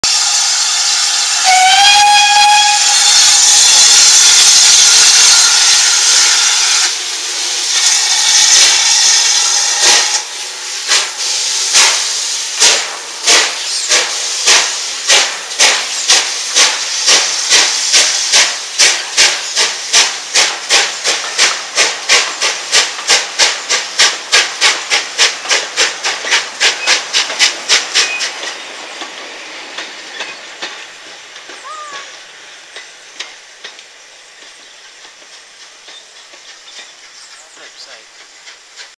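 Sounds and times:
steam locomotive whistle: 0:00.0 - 0:10.4
loud hiss of steam: 0:00.0 - 0:38.9
steam exhaust chuffs: 0:00.0 - 0:38.9.

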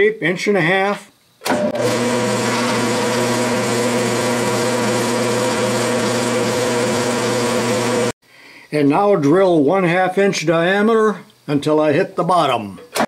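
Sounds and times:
lathe switch: 0:01.4 - 0:07.0
lathe running with hum: 0:01.5 - 0:08.2.

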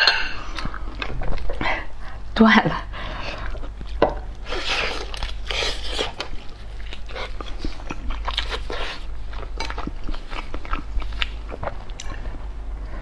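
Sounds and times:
wet chewing: 0:03.3 - 0:12.4.

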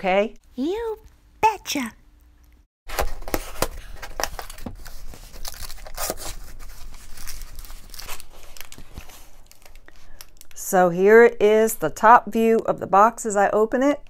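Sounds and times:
cardboard flaps rustling: 0:02.9 - 0:09.6
packing tape tearing off box: 0:02.9 - 0:10.4.

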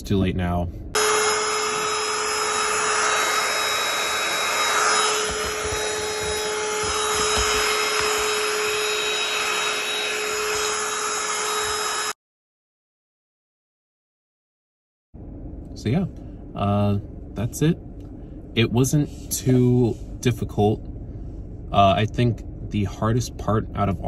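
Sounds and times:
handheld vacuum motor whine: 0:01.0 - 0:12.2.

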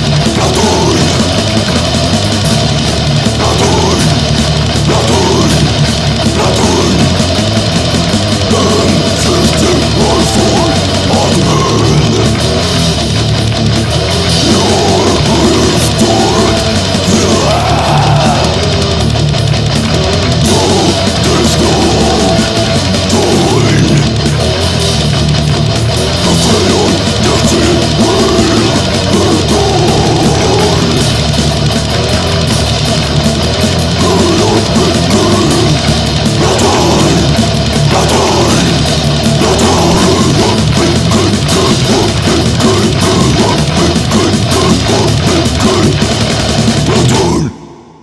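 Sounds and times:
death metal band playing: 0:00.0 - 0:48.0.

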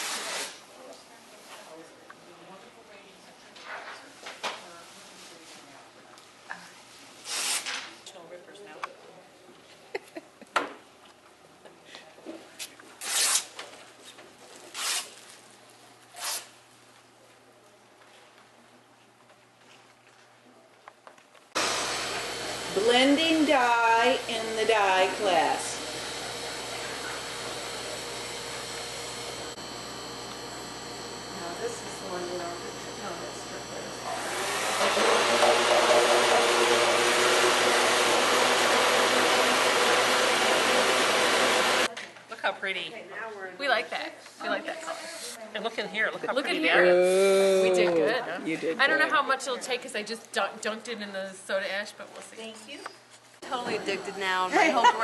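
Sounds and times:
blender motor running: 0:21.6 - 0:41.9.

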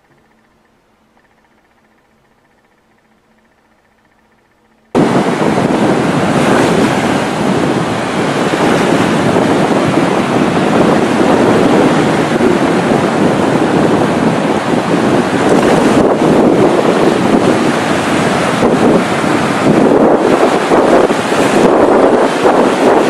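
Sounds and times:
surf breaking on shore: 0:04.9 - 0:23.0
wind rushing over microphone: 0:04.9 - 0:23.0.

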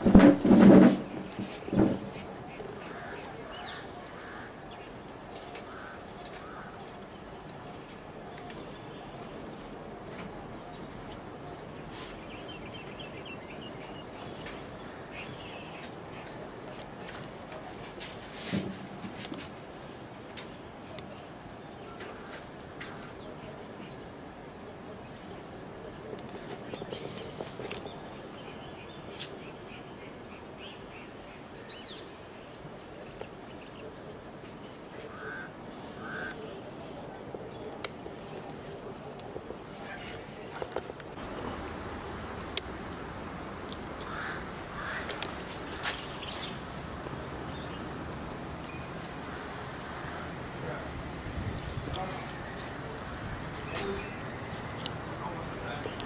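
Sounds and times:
small birds chirping: 0:01.1 - 0:56.0
background hiss and hum: 0:18.1 - 0:56.0.

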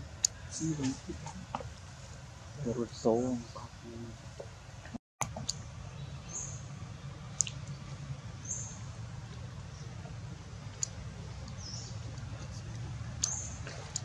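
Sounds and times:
low outdoor rumble: 0:00.0 - 0:14.0.

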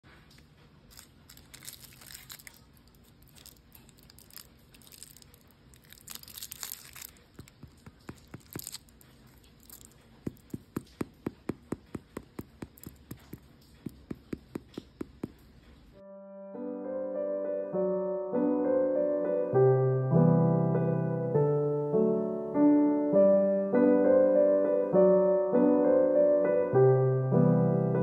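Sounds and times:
paper liner crinkling: 0:00.1 - 0:15.9
finger tapping on bread crust: 0:07.4 - 0:08.8, 0:09.7 - 0:15.6.

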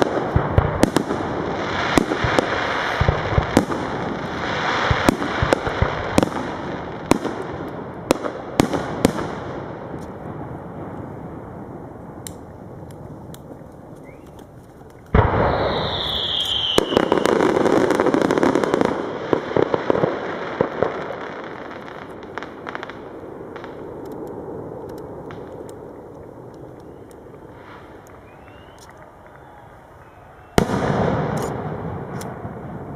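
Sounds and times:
firework crackling: 0:00.0 - 0:32.9
firework bang: 0:15.1 - 0:21.5, 0:30.5 - 0:32.9
falling whistle: 0:15.4 - 0:17.6, 0:28.2 - 0:30.7.

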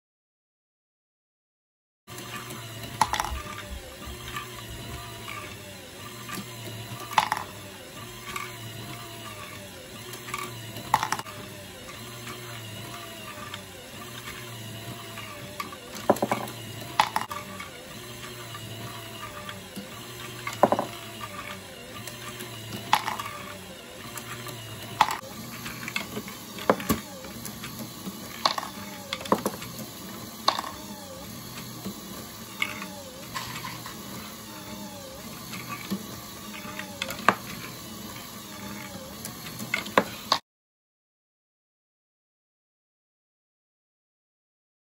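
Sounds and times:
motor humming and whining: 0:02.1 - 0:40.4
plastic balls clicking and clattering: 0:02.8 - 0:05.4, 0:06.2 - 0:08.6, 0:10.1 - 0:11.3, 0:15.5 - 0:18.4, 0:20.2 - 0:29.8, 0:30.4 - 0:30.9, 0:32.6 - 0:34.0.

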